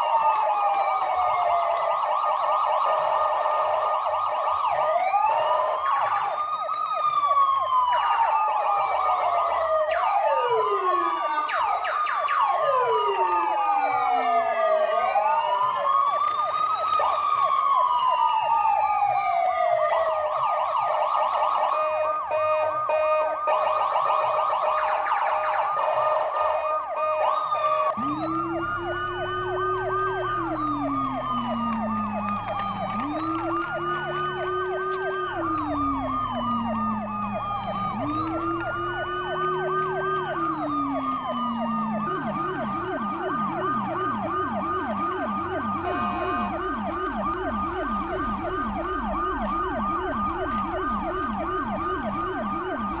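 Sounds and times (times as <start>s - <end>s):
fast warbling toy siren: 0.0s - 53.0s
slow wailing toy siren: 0.0s - 53.0s
quick low-pitched siren yelp: 25.8s - 53.0s.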